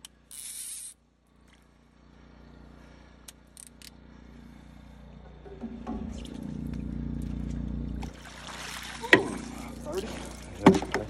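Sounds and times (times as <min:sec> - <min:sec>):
low steady hum: 0:00.0 - 0:11.0
fish splashing: 0:05.8 - 0:11.0.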